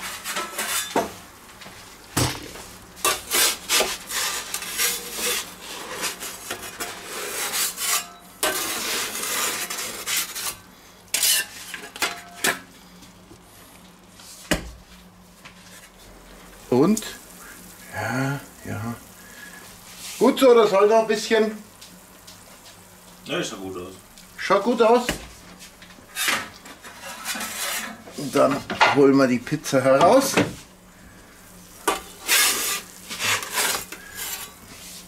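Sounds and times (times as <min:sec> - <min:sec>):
metal peel scraping on stone: 0:00.0 - 0:01.0, 0:03.0 - 0:12.0, 0:26.1 - 0:28.0, 0:31.8 - 0:34.6.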